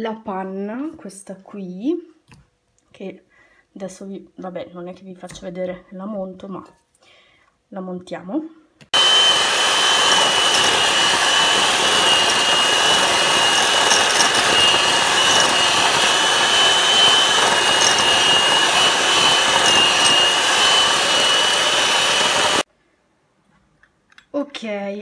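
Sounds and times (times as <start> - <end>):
electric hand mixer whining: 8.9 - 22.7.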